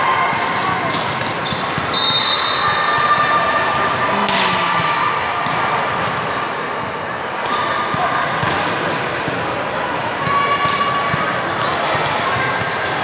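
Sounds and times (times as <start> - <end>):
players' voices: 3.0 - 6.6.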